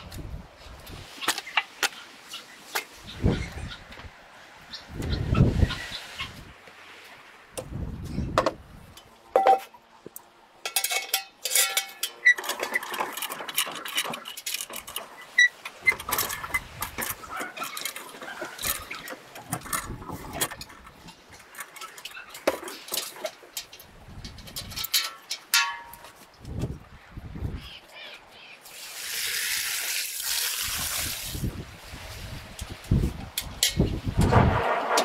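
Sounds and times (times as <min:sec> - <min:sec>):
metal bucket knocking and rattling: 0:10.7 - 0:14.3.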